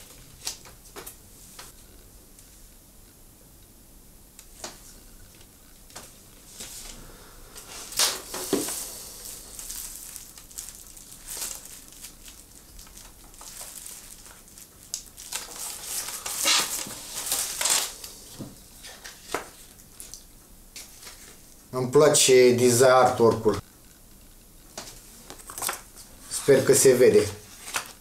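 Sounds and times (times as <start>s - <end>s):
packaging crinkling and tearing: 7.8s - 20.2s, 27.4s - 28.0s.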